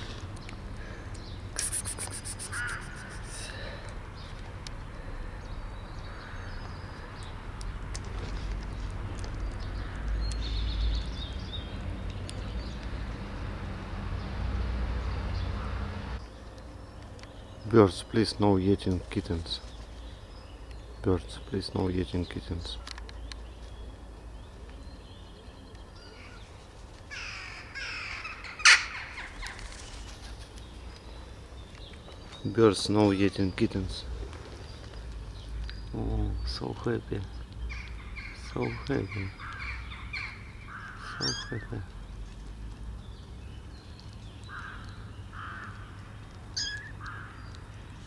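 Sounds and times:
jackdaw calling: 0:00.8 - 0:03.6, 0:27.1 - 0:30.4, 0:37.7 - 0:41.9, 0:44.4 - 0:47.7
crow cawing: 0:02.5 - 0:03.2, 0:27.1 - 0:29.3, 0:39.3 - 0:41.7, 0:44.5 - 0:46.0, 0:46.6 - 0:47.5
high bird chirp: 0:37.3 - 0:41.8, 0:46.6 - 0:47.6.

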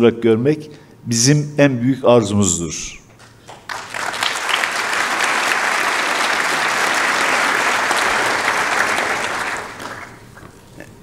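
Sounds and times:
audience applauding: 0:03.2 - 0:10.5.

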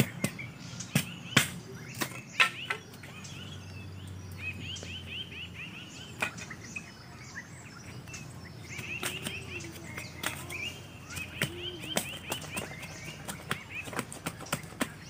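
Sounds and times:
machete cutting bamboo: 0:00.0 - 0:02.9
birds chirping: 0:00.0 - 0:15.0.

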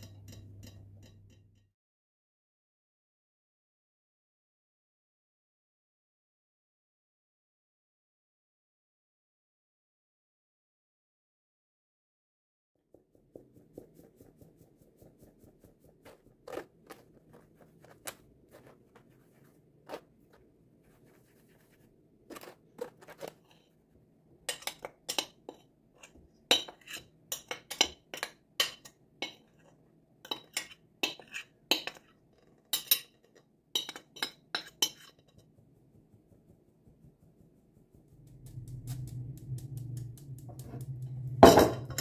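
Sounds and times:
metal sieve tapping over bowl: 0:00.0 - 0:01.4, 0:33.8 - 0:35.2.

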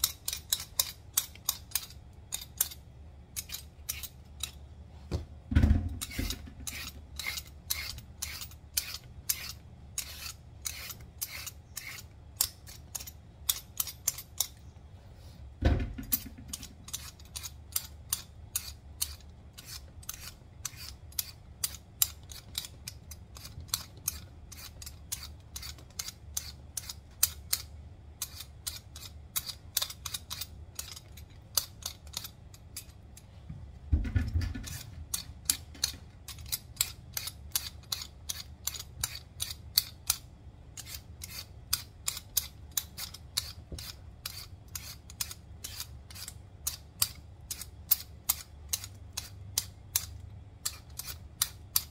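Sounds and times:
vegetable peeler scraping: 0:00.0 - 0:04.6, 0:06.0 - 0:14.6, 0:16.2 - 0:33.0, 0:34.6 - 0:40.2, 0:40.8 - 0:51.9.

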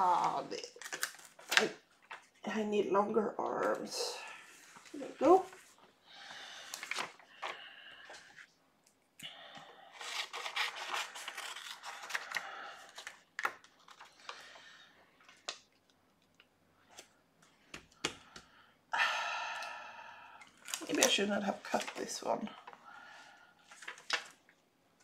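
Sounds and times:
paper rustling and sliding: 0:06.6 - 0:08.5, 0:10.0 - 0:13.2.

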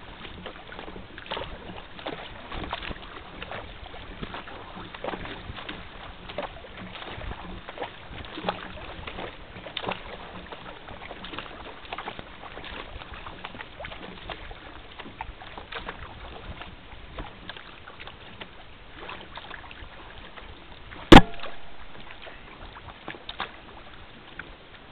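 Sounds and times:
paddle stroke splashes: 0:00.0 - 0:24.9
water rushing along kayak hull: 0:00.0 - 0:24.9
sharp knock: 0:21.1 - 0:22.0.

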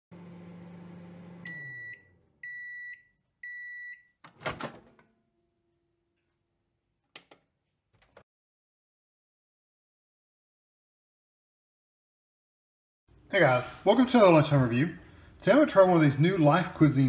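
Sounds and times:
microwave hum: 0:00.1 - 0:06.2
microwave beeps: 0:01.1 - 0:04.2
microwave door opening clunk: 0:04.3 - 0:05.0.

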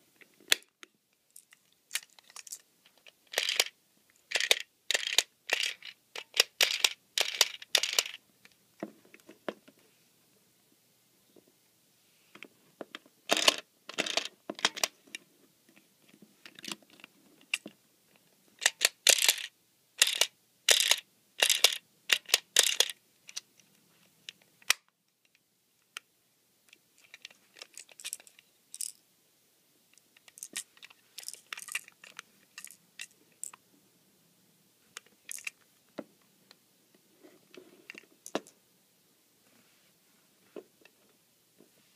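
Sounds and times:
plastic toy clicking and rattling: 0:01.4 - 0:08.2, 0:13.3 - 0:15.0, 0:18.6 - 0:23.5, 0:27.0 - 0:29.0, 0:30.0 - 0:33.6, 0:35.0 - 0:35.6.

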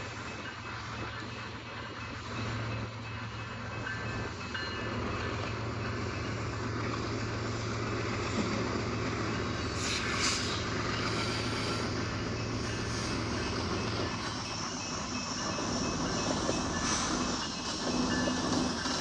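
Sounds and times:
diesel locomotive engine drone: 0:00.0 - 0:19.0
short air hisses: 0:09.8 - 0:11.9.

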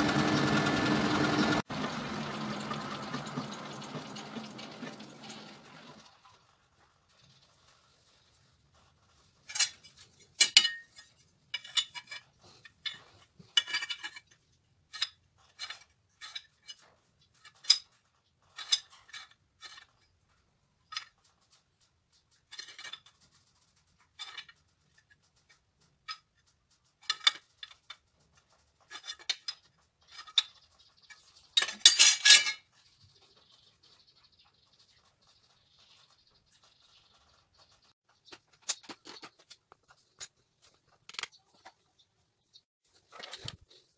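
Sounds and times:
metal clinking against metal: 0:09.5 - 0:14.2, 0:31.6 - 0:32.7.

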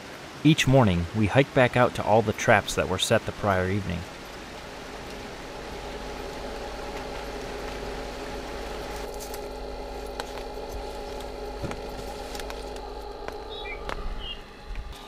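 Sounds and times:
small electric fan humming: 0:04.0 - 0:15.0
bird chirp: 0:13.4 - 0:15.0.

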